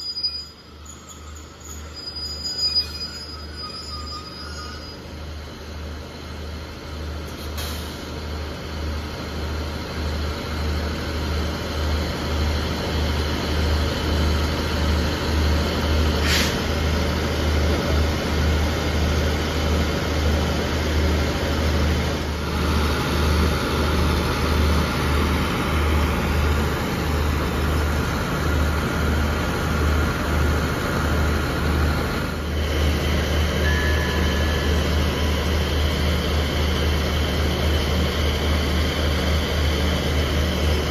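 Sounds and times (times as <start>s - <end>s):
diesel train engines idling: 0.0s - 40.9s
short hiss: 16.2s - 16.7s.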